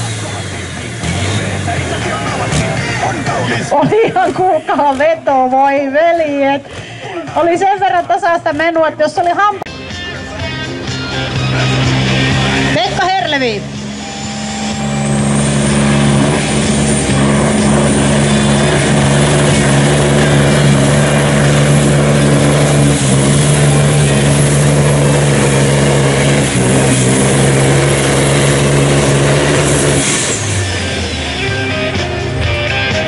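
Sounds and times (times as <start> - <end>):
diesel truck engine revving hard: 0.0 - 4.6, 10.8 - 33.0
high whistle: 13.8 - 16.0.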